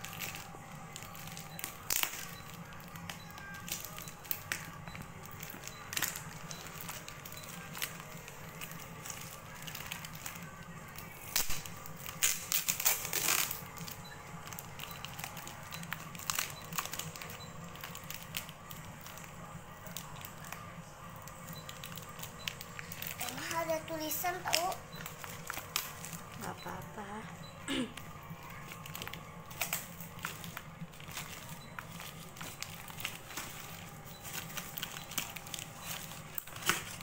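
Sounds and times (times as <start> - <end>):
packing tape peeling and tearing: 0.0 - 4.7, 5.3 - 20.6, 28.5 - 37.0.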